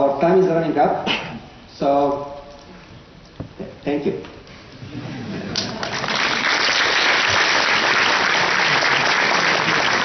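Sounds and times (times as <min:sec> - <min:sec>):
crowd applauding: 0:05.4 - 0:10.0.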